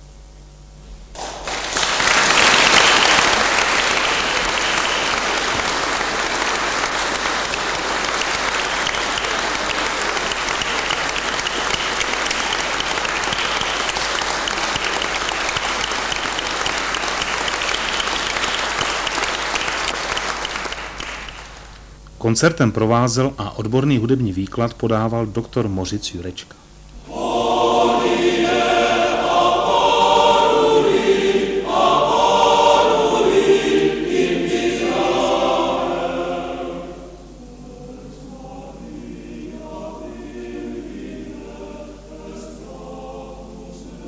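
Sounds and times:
audience applause: 1.2s - 21.8s
men's choir chord: 2.2s - 21.1s, 27.0s - 44.0s.

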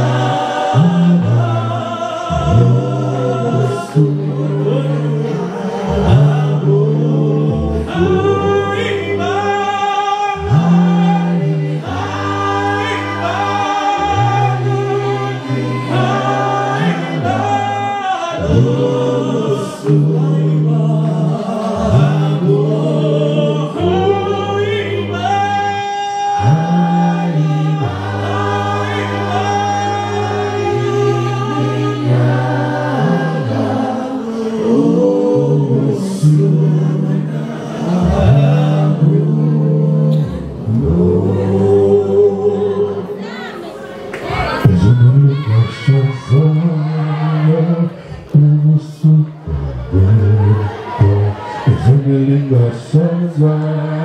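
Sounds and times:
deep bass voice: 0.0s - 12.3s, 13.1s - 33.8s, 44.6s - 54.0s
male group singing in harmony: 0.0s - 43.4s, 44.0s - 54.0s.

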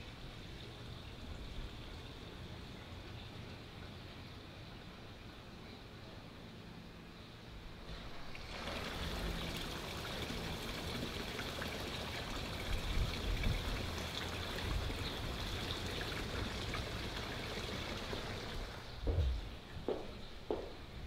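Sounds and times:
water running: 7.9s - 20.7s
low thuds: 19.1s - 20.8s.

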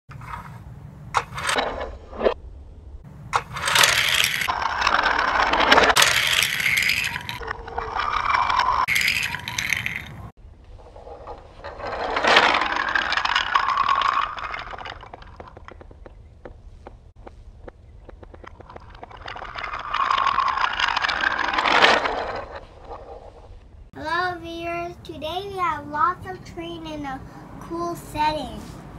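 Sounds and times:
toy train wheels rattling on track: 3.4s - 16.0s, 18.3s - 23.6s.

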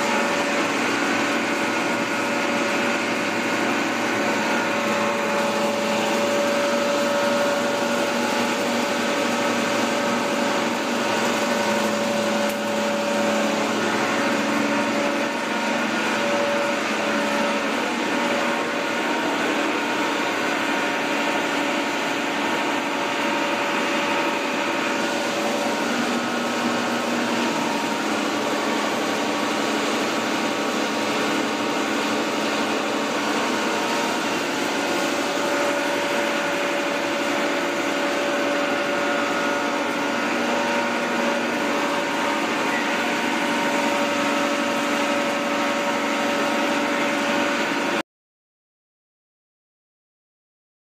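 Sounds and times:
machinery hum and whir: 0.0s - 48.0s.

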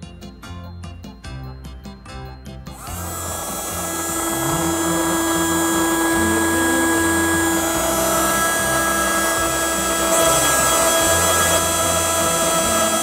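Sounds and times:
toy vacuum motor whining: 2.7s - 13.0s.

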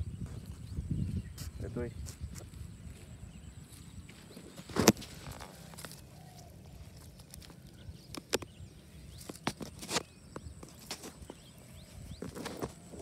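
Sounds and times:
rustle of grass and netting: 0.1s - 13.0s.

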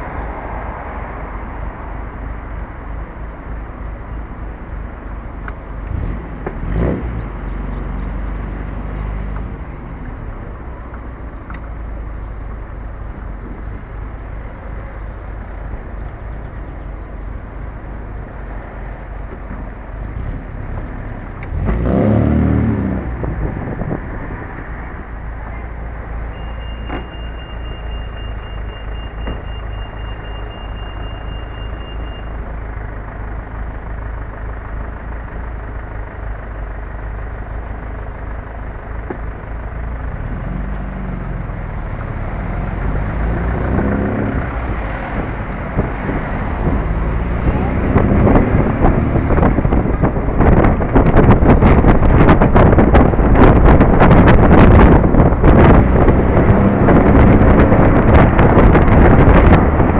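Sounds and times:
traffic noise: 0.0s - 59.9s
faint birds chirping: 7.2s - 9.6s, 10.2s - 21.2s
car engine running: 32.4s - 59.9s.

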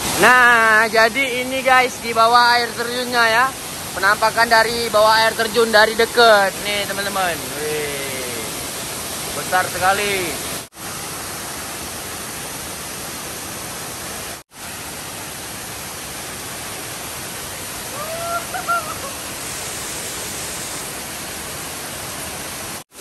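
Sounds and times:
waterfall rushing onto rocks: 0.0s - 23.0s
short pitched cry: 17.9s - 19.2s.

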